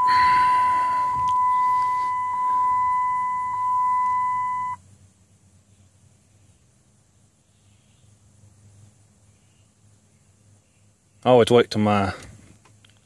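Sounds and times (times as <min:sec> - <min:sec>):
steady high beep: 0:00.0 - 0:04.8.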